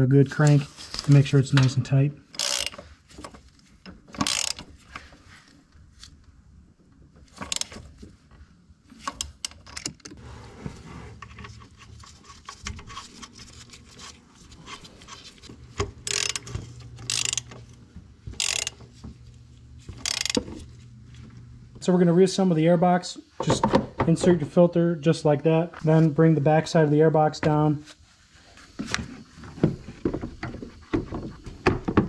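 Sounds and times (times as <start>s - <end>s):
hand ratchet clicking: 2.3s - 2.8s, 4.1s - 4.7s, 7.4s - 7.8s, 16.0s - 17.6s, 18.4s - 18.8s, 19.9s - 20.6s.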